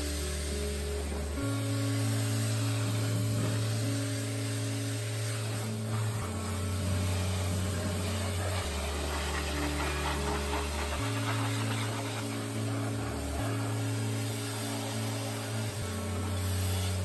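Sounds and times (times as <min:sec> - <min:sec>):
background music with bass: 0:00.0 - 0:17.0
pressure washer spray hiss: 0:00.0 - 0:17.0.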